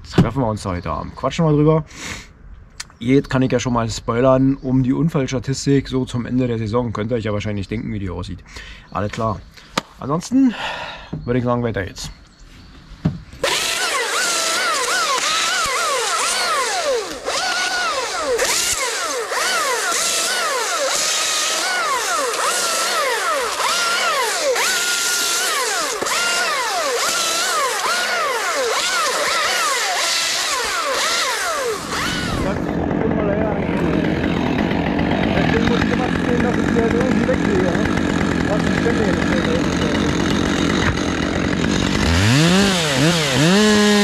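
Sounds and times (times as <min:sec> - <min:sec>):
chainsaw revving: 0:13.4 - 0:44.0.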